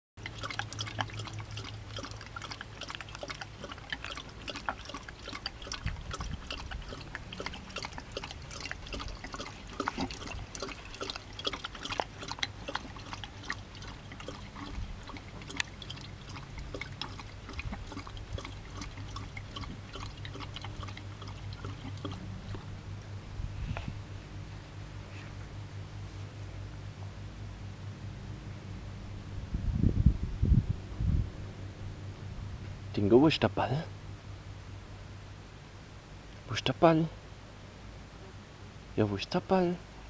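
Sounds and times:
dog lapping water: 0.2 - 22.8.

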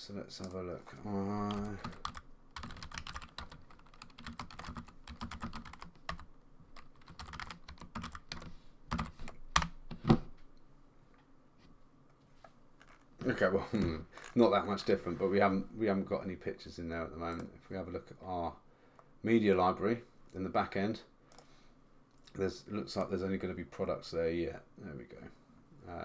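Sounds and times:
keyboard typing: 1.4 - 9.8.

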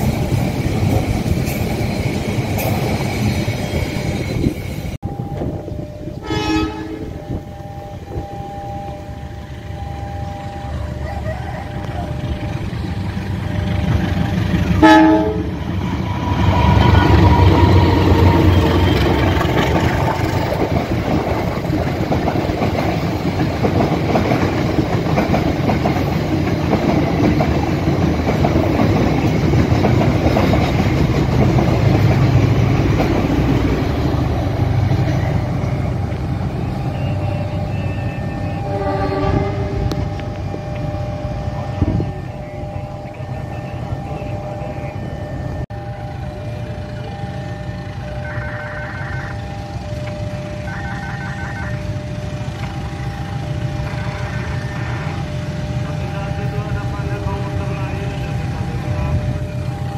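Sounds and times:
train rumbling past: 0.0 - 59.9
locomotive horn blast: 5.4 - 12.4, 14.6 - 19.4, 36.6 - 45.1, 46.9 - 52.9
wheels clattering on rails: 11.2 - 37.7.

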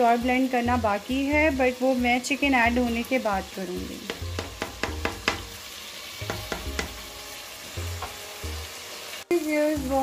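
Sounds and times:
spoon scraping and knocking pot: 4.1 - 5.5, 6.2 - 7.0.

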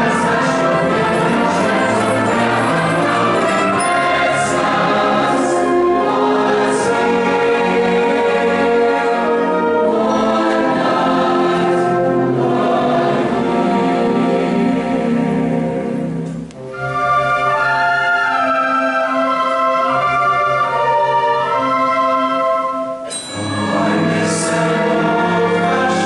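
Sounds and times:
concert band playing: 0.0 - 6.4
choir singing: 0.0 - 16.3, 17.6 - 26.0.

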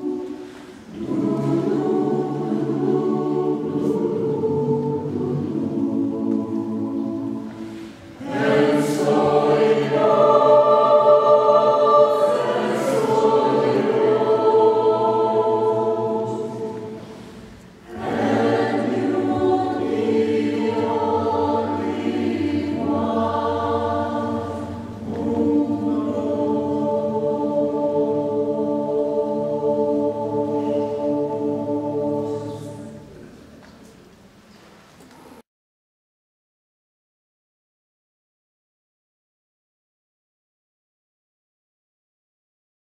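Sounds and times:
mixed choir singing held chords: 0.0 - 33.4.

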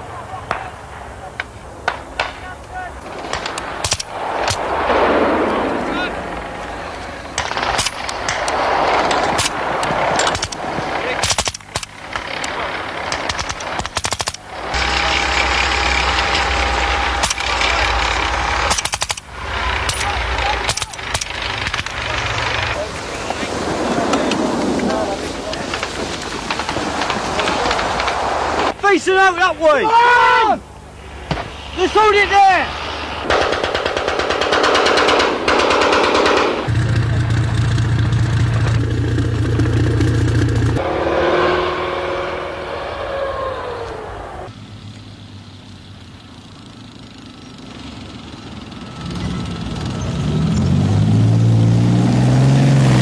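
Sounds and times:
armoured vehicle engine rumbling: 0.0 - 29.8, 30.6 - 53.0
machine-gun fire: 7.3 - 22.8, 33.2 - 38.2
gunfire burst: 33.2 - 36.8.

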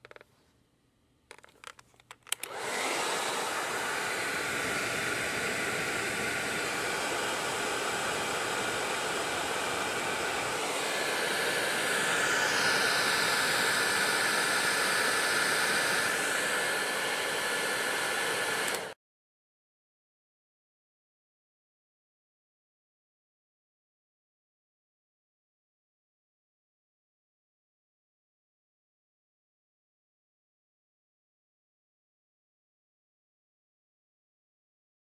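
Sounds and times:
hair dryer running: 2.3 - 19.0.

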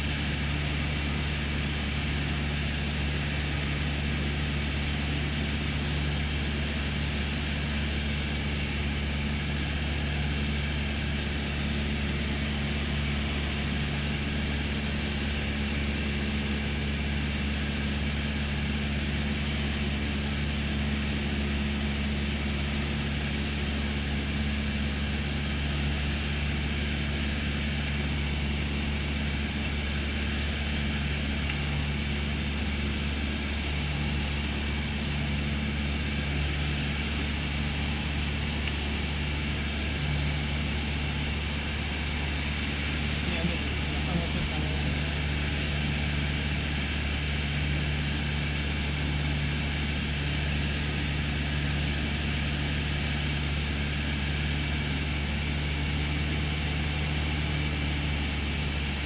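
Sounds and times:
aircraft engine drone: 24.4 - 56.2.

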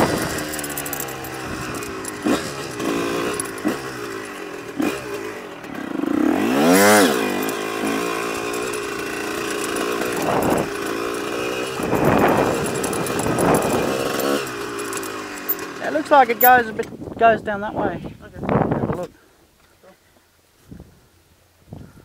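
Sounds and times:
two-stroke motorcycle engine revving: 0.0 - 16.8.

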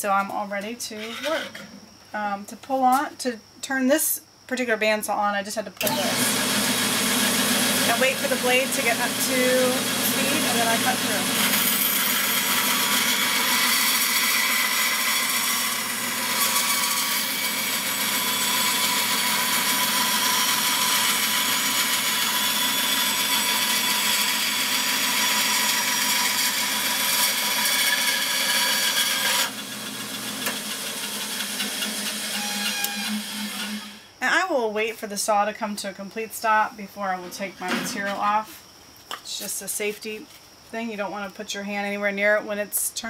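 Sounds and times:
band saw cutting wood: 5.8 - 34.0
saw motor hum: 5.8 - 34.0
saw winding down: 5.8 - 34.0.

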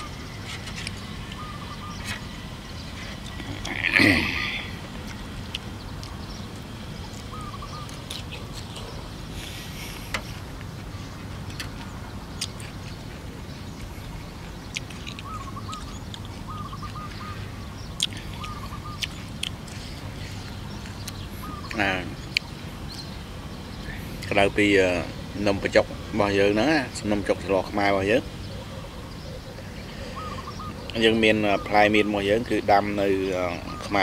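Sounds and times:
small bird chirping: 0.0 - 34.0
chewing and mouth sounds: 3.0 - 9.1, 10.9 - 17.1, 17.9 - 21.2.

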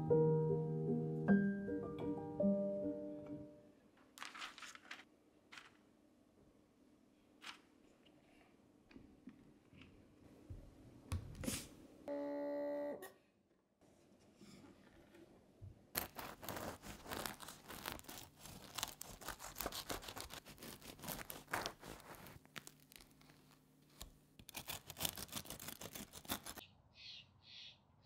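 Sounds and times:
knife sawing through crusty bread: 16.0 - 22.4, 24.5 - 26.6
bird chirping: 26.6 - 28.0.

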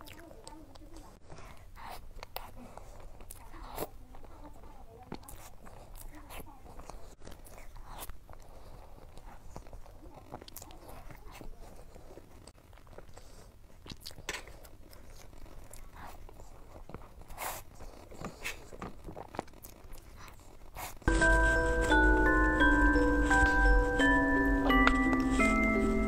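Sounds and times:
wet mouth smacks and chewing: 5.1 - 21.0.

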